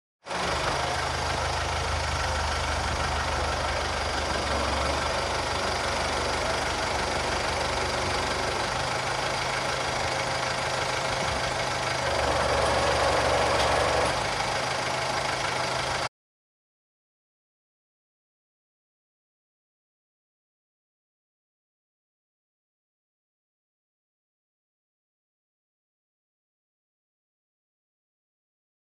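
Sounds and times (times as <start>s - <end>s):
engine idling: 0.2s - 16.1s.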